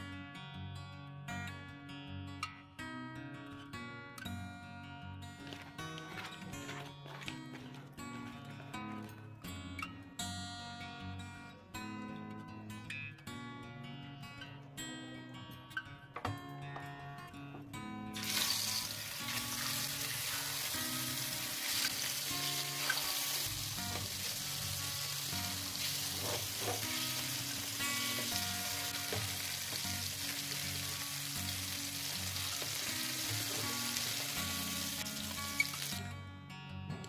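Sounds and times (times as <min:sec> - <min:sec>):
fish sizzling in hot oil: 0:18.2 - 0:36.0.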